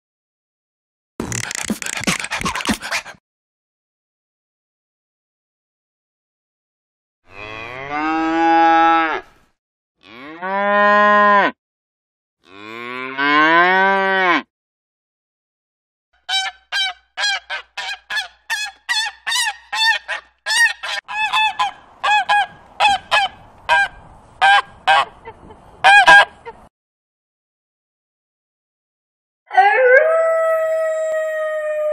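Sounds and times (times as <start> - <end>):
cow mooing: 10.0 - 11.6, 12.5 - 14.5
turkey calling: 16.3 - 25.1.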